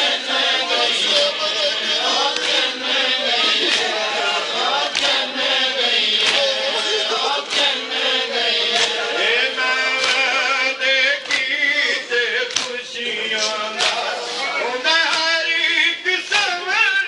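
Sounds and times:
men chanting in unison: 0.0s - 17.0s
chest-beating slaps: 10.0s - 10.3s, 12.5s - 12.8s.

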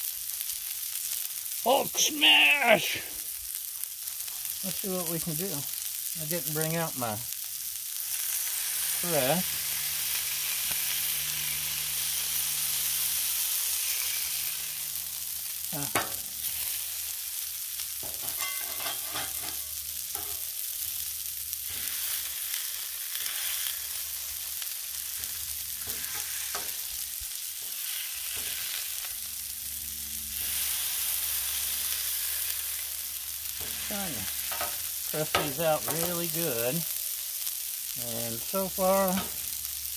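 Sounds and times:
meat sizzling on griddle: 0.0s - 39.9s
metal spatula scraping steel: 18.0s - 20.4s.

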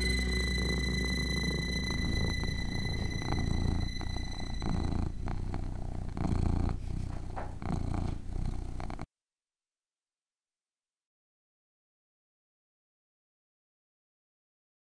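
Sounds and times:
cat purring: 0.0s - 9.1s.

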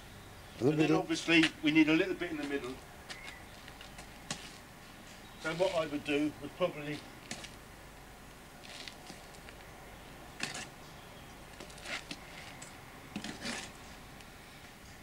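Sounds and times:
trowel scraping wet mortar: 10.4s - 10.7s, 13.2s - 13.8s.

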